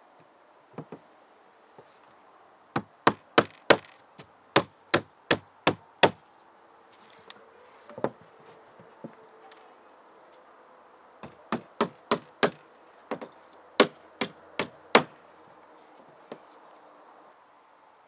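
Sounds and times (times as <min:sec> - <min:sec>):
hammer striking nails: 0:02.8 - 0:04.0, 0:04.6 - 0:06.2, 0:11.2 - 0:15.2.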